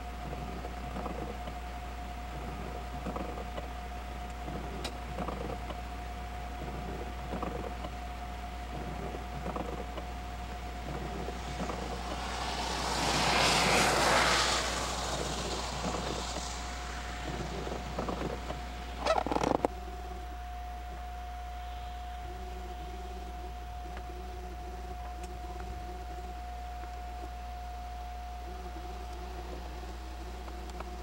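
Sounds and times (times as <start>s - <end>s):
faint steady hum: 0.0s - 31.0s
car passing: 9.4s - 19.7s.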